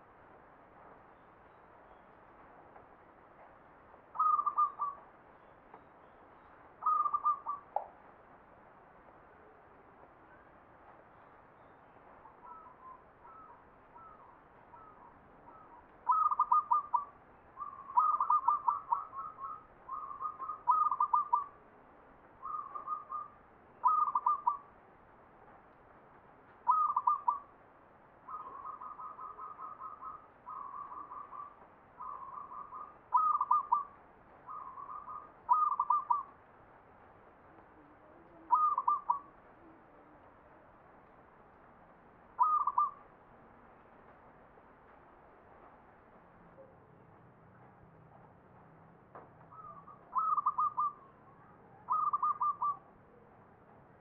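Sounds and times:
dove cooing: 4.2 - 5.0, 6.8 - 7.7, 12.4 - 21.6, 22.4 - 24.7, 26.7 - 27.5, 28.3 - 36.3, 37.8 - 39.8, 42.4 - 43.0, 49.5 - 51.1, 51.8 - 52.9.

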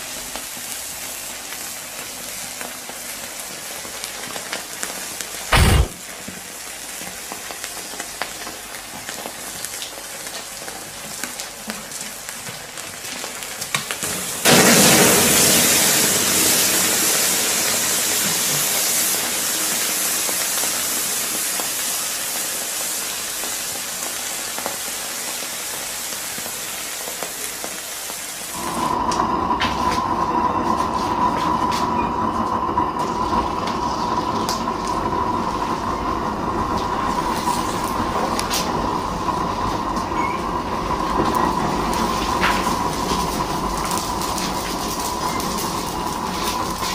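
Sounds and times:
crackling and sizzling: 0.0 - 46.9
loud hissing rush: 5.5 - 5.9.

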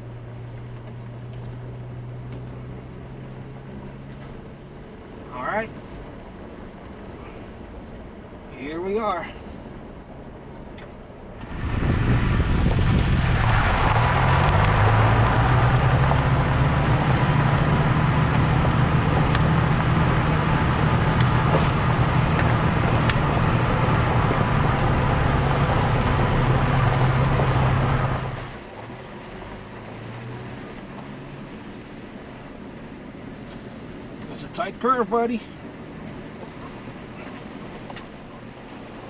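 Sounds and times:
truck engine humming: 0.0 - 39.0
tyres crunching over gravel: 11.4 - 28.6.

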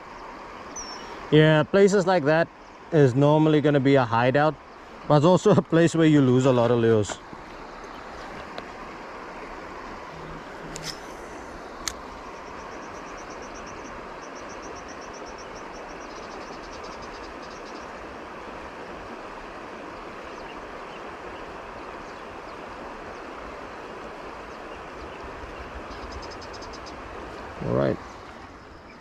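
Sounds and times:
river water rushing over rocks: 4.0 - 29.0
insect trilling: 12.2 - 17.9.

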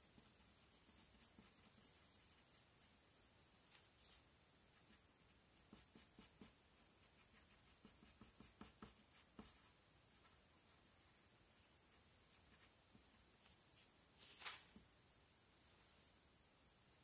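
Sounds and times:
pencil scratching on paper: 0.0 - 3.1, 3.7 - 10.4, 11.6 - 13.9.

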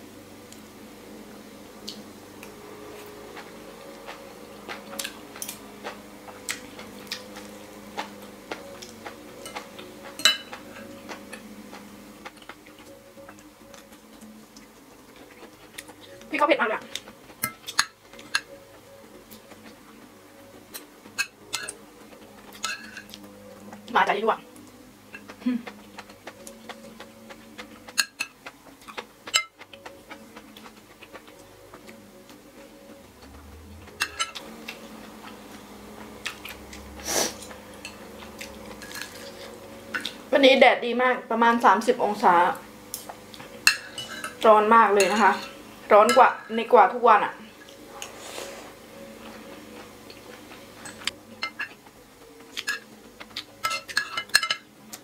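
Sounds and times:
cutlery scraping ceramic plate: 22.5 - 23.2, 43.6 - 44.4
cutlery scraping on ceramic plate: 22.5 - 23.2, 38.8 - 39.5, 43.6 - 44.4, 53.6 - 54.6.

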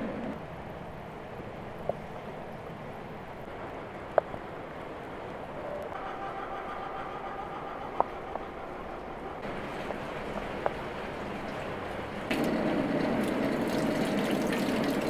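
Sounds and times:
rain pattering on water and plants: 9.4 - 15.0.

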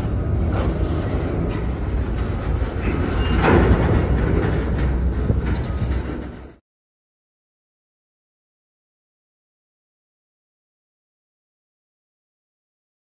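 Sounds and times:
train wheels rumbling: 0.0 - 6.6
wheels clacking on rail joints: 0.0 - 6.6.

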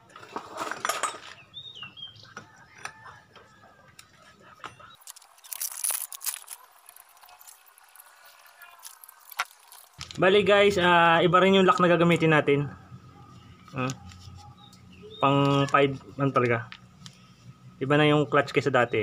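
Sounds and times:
metallic clinks and scrapes: 0.2 - 1.4, 4.6 - 10.2.

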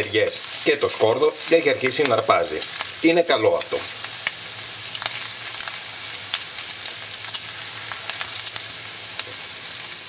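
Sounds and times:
bacon sizzling in a frying pan: 0.0 - 10.0
fat crackling and popping: 0.0 - 10.0.

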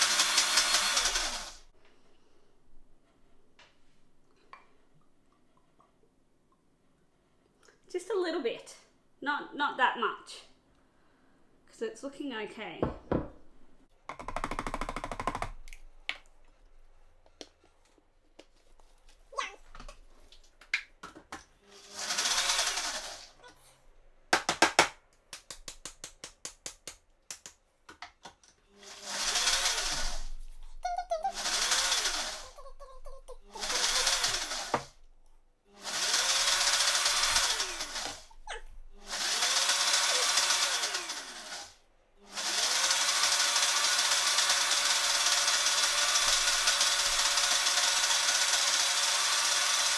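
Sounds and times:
blender motor pulsing: 0.0 - 1.7, 21.7 - 23.4, 28.8 - 30.4, 31.2 - 32.7, 33.4 - 35.0, 35.8 - 49.9.

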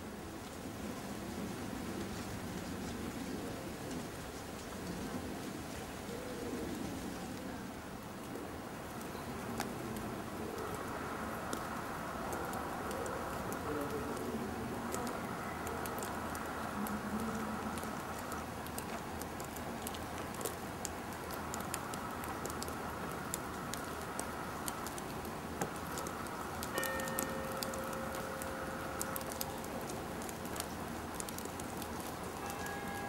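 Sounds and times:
outdoor background hiss: 0.0 - 33.0
faint ticks and clicks: 8.2 - 33.0
faint steady tone: 26.8 - 30.6, 32.3 - 33.0.

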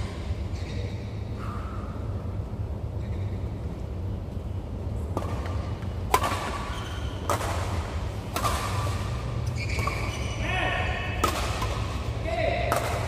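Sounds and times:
steady low hum: 0.0 - 13.0
rackets hitting shuttlecock: 5.0 - 10.5, 11.1 - 13.0.

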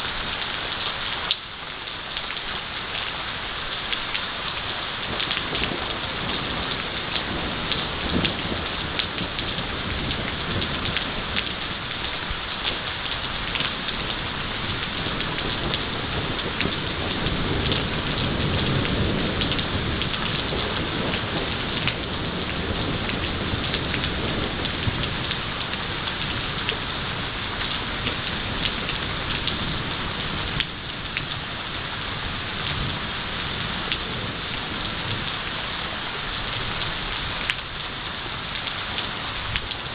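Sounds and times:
heavy rain falling: 0.0 - 39.9
low rumble of thunder: 4.7 - 39.9.

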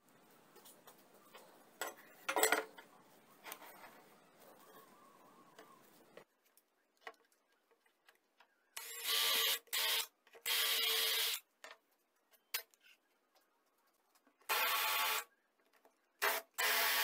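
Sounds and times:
tools clicking and knocking: 1.8 - 2.9
cordless drill boring into wood: 8.8 - 11.4, 14.5 - 15.3, 16.2 - 17.0.

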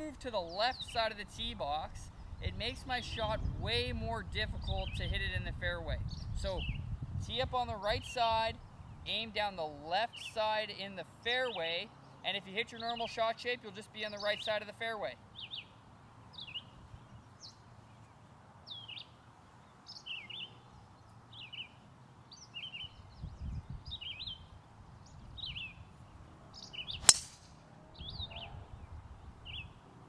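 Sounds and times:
birds chirping: 0.0 - 5.4, 6.0 - 30.0
golf club striking ball: 27.0 - 27.6.

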